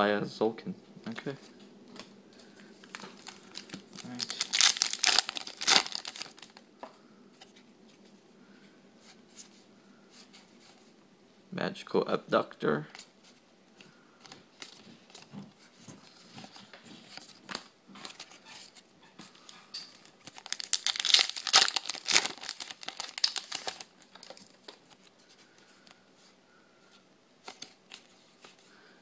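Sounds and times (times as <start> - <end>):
cards rustling and clicking: 2.8 - 6.6
foil wrapper crinkling and tearing: 2.8 - 6.6, 19.9 - 24.8.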